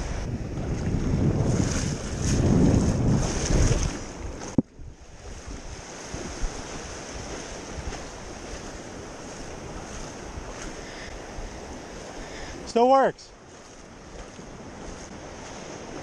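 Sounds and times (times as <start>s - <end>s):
wind buffeting microphone: 0.0s - 12.7s
ocean surf: 0.0s - 16.0s.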